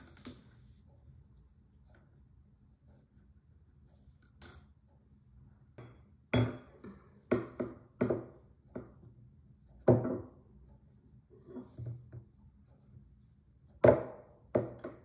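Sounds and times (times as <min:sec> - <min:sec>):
tools knocking on wooden table: 0:06.4 - 0:09.1, 0:09.8 - 0:10.4, 0:13.8 - 0:15.0.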